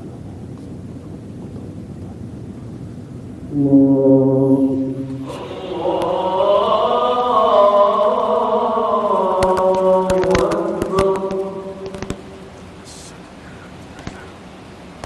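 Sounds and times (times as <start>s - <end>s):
man chanting over loudspeaker: 3.8s - 13.1s
sharp clicks: 9.4s - 12.2s.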